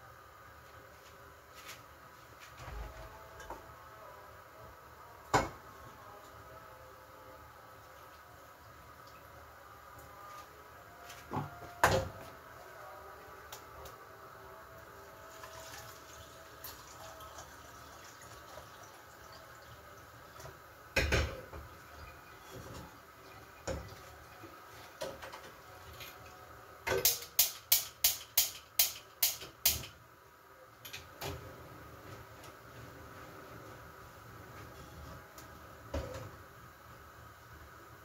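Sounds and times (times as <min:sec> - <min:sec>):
faint steady background noise: 0:00.0 - 0:38.0.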